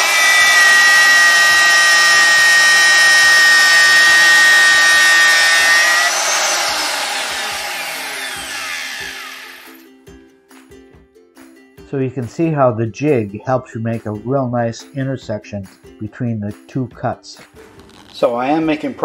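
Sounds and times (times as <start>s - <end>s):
electric router whining: 0.0s - 9.8s
router motor spinning down: 0.0s - 9.8s.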